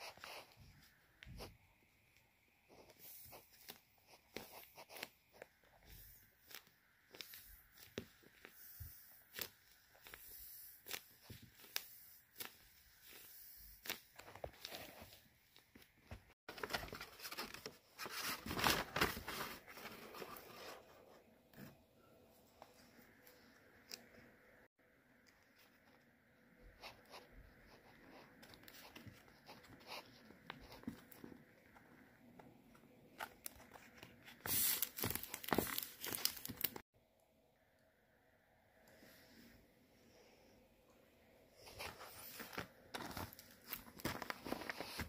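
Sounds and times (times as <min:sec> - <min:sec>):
paper crinkling and crackling: 0:02.7 - 0:21.0, 0:26.8 - 0:31.9, 0:33.1 - 0:36.8, 0:41.6 - 0:45.0.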